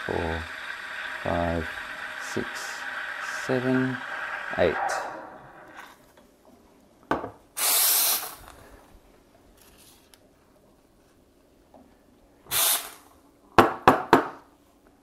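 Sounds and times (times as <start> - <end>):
steam wand hissing: 0.0 - 5.8, 7.6 - 8.4, 12.5 - 13.0.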